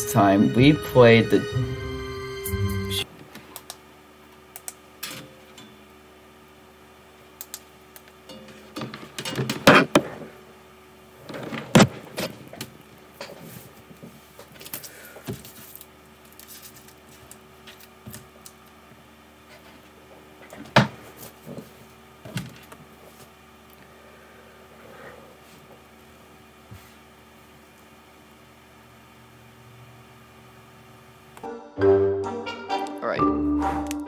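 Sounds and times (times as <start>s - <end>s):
faint steady hum: 0.0s - 31.5s
knocks clatters and rustles: 11.2s - 15.7s.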